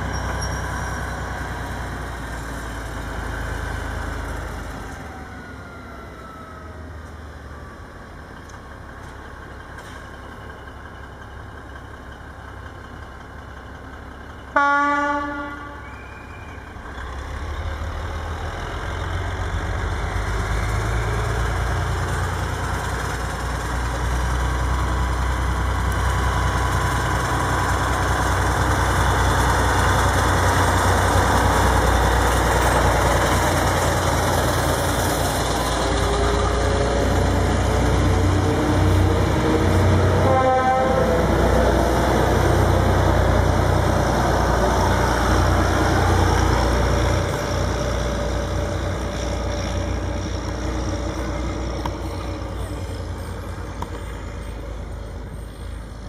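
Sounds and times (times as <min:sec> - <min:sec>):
diesel railcar rumble: 0:00.0 - 0:56.0
train horn toot: 0:14.5 - 0:16.4, 0:40.1 - 0:41.4.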